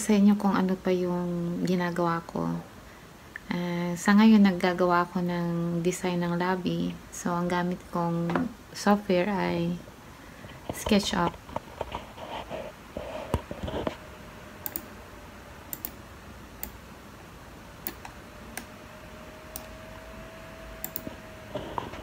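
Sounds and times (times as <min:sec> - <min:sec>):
faint steady hum: 0:00.0 - 0:22.0
computer mouse clicks: 0:14.6 - 0:14.9, 0:15.7 - 0:16.0, 0:16.6 - 0:16.8, 0:17.8 - 0:18.7, 0:19.5 - 0:19.8, 0:20.8 - 0:21.9.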